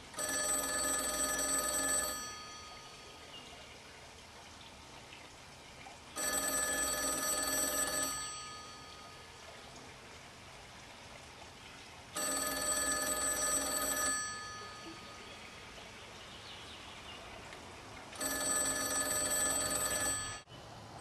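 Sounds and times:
payphone ringing: 0.0 - 3.1, 6.2 - 9.3, 12.2 - 15.2, 18.2 - 20.5.

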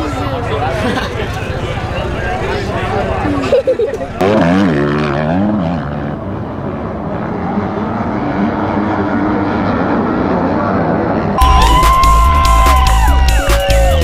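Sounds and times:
motocross bike engine revving: 4.1 - 11.5.

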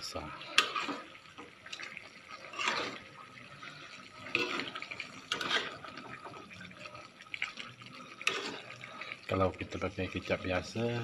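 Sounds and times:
utensil scraping in wok: 0.4 - 6.5, 8.0 - 9.2.

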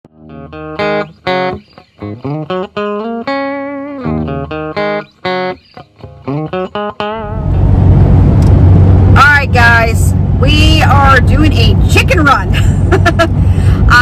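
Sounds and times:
plucked guitar melody: 0.1 - 8.8.

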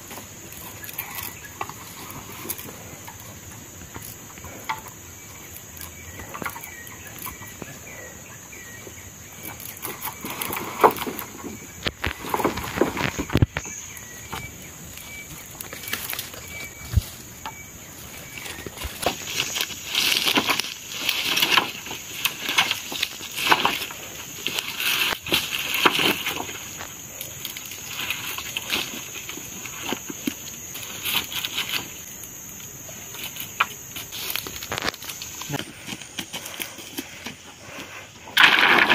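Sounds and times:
bamboo poles knocking together: 0.0 - 7.8, 15.2 - 26.9
rustling in dry leaf litter: 9.2 - 37.8.

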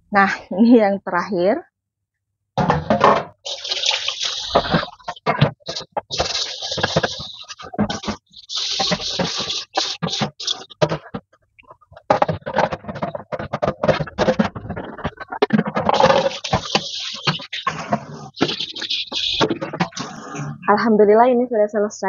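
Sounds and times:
splashing water: 3.4 - 10.8, 15.8 - 19.9
metal pan being scrubbed: 3.5 - 10.8, 14.2 - 20.4.

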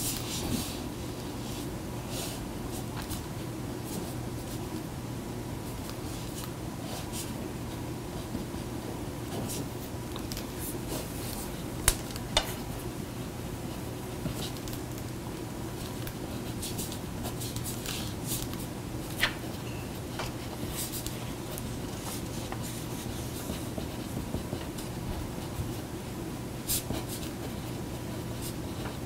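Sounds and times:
room hum: 0.0 - 29.0
pen scratching on paper: 20.3 - 24.9.

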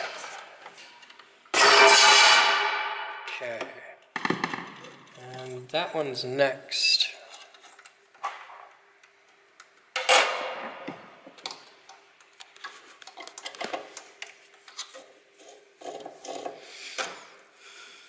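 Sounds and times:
small clicks taps and scraping: 11.3 - 16.6.

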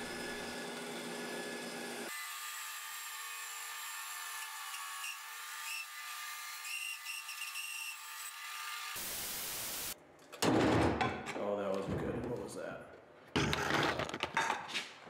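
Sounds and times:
bandsaw cutting wood: 0.0 - 9.0.

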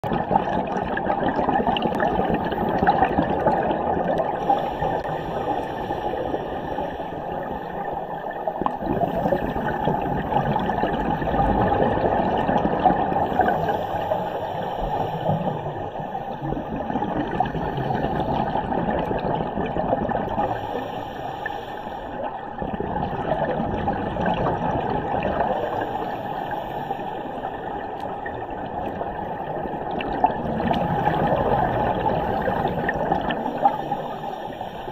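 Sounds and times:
bubbles gurgling underwater: 0.0 - 20.9, 22.2 - 26.6, 27.3 - 34.9
muffled underwater rush: 0.0 - 34.9.

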